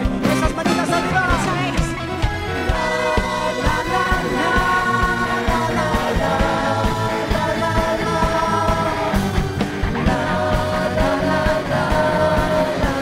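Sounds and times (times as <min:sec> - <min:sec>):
pop singer over band: 0:00.0 - 0:13.0
steady drum beat: 0:00.0 - 0:13.0.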